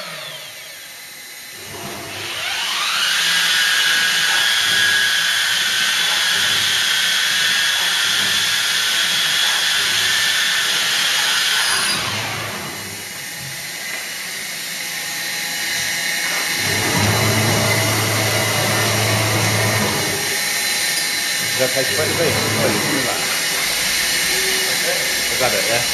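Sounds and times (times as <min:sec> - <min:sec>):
low machine hum: 0:12.4 - 0:25.9
spindle high whine and hiss: 0:19.7 - 0:25.9.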